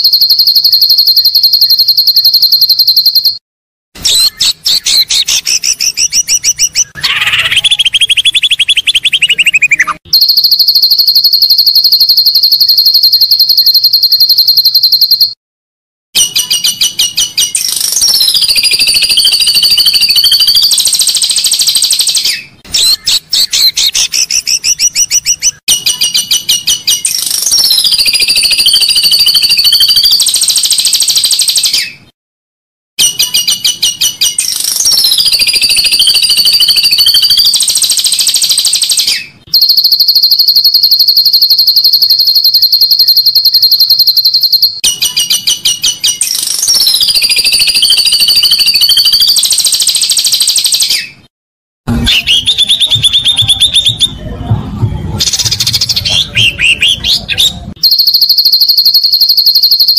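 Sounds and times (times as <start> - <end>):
recorded songbird song: 0.0 - 3.4, 4.0 - 15.4, 16.2 - 32.1, 33.0 - 51.3, 51.9 - 54.4, 55.1 - 59.9
fast high bird trill: 4.1 - 15.3.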